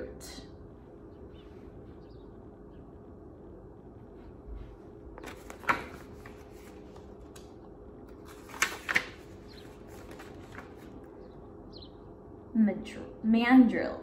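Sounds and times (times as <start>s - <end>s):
book pages rustling and flicking: 4.6s - 11.2s.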